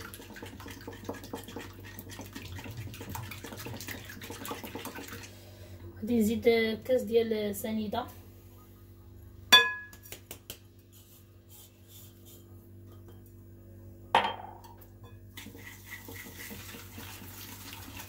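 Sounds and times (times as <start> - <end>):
whisk beating eggs in bowl: 0.0 - 5.2, 15.4 - 18.0
glass clinking against bowl: 9.5 - 9.9.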